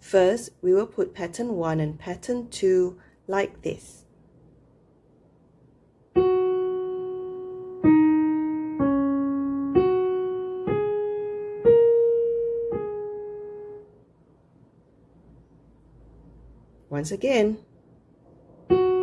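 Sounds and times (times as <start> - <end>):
digital piano slow tune: 6.2 - 14.0, 18.6 - 19.0.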